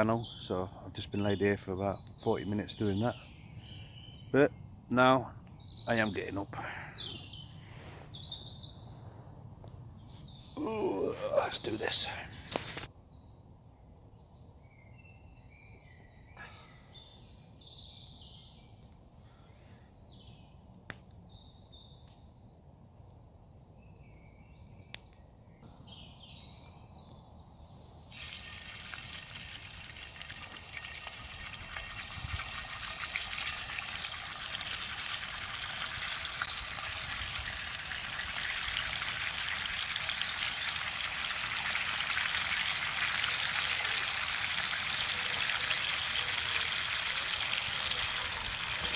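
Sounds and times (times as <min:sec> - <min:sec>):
birds singing: 0:00.0 - 0:48.9
bacon sizzling in a skillet: 0:28.1 - 0:31.4, 0:33.2 - 0:48.8.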